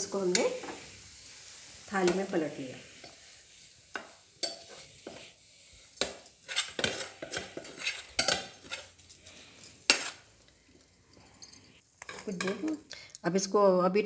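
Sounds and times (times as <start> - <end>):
metal spoon scraping metal pan: 0.1 - 10.4.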